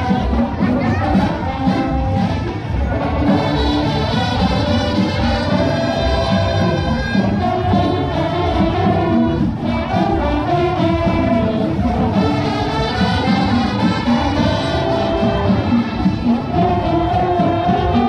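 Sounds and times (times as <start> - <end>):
marching band playing: 0.0 - 18.0.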